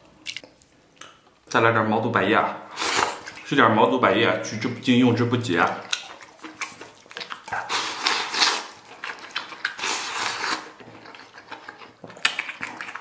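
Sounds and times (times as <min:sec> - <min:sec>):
chewing: 0:05.8 - 0:13.0
person slurping food: 0:07.4 - 0:08.8.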